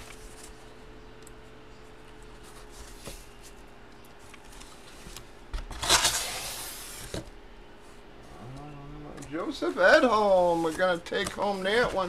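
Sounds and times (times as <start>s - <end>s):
cardboard rustling scrape: 5.7s - 7.3s.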